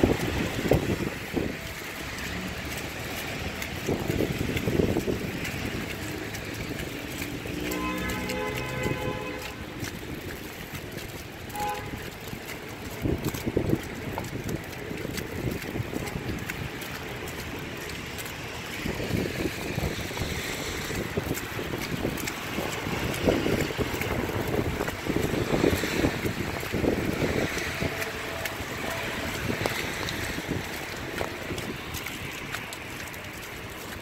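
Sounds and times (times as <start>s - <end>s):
footsteps in slush: 0.0s - 34.0s
wind buffeting microphone: 0.0s - 34.0s.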